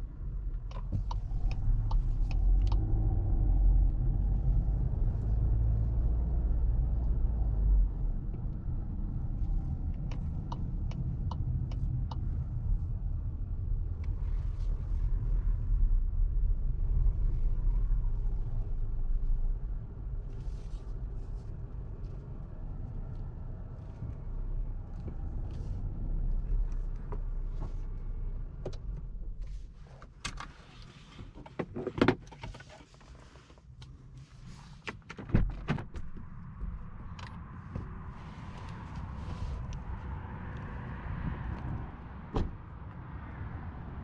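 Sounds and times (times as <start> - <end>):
engine and road rumble: 0.0 - 44.0
turn signal ticking: 0.5 - 3.5, 9.5 - 13.1.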